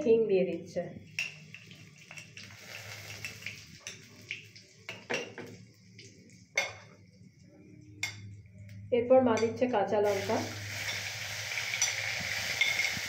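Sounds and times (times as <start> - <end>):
seeds sizzling in hot oil: 1.2 - 6.6, 10.0 - 13.0
crockery and utensils clinking: 6.6 - 7.0, 10.8 - 13.0.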